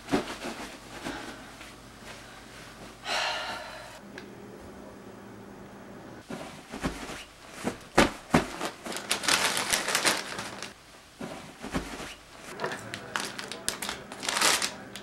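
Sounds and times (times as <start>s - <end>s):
bag crinkling and rustling: 7.6s - 10.8s, 11.9s - 15.0s.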